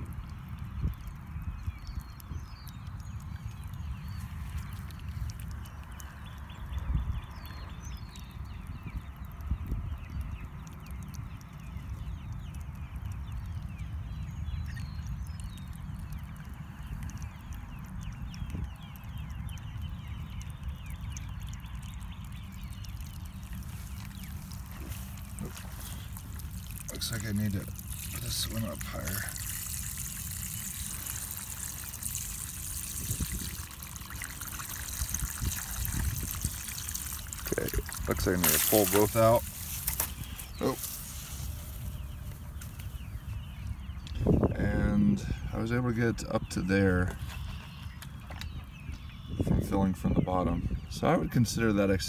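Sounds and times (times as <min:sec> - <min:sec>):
water trickling and spraying: 0:00.0 - 0:50.1
wind rumble on microphone: 0:00.0 - 0:52.0
falling bird chirps: 0:11.2 - 0:44.6.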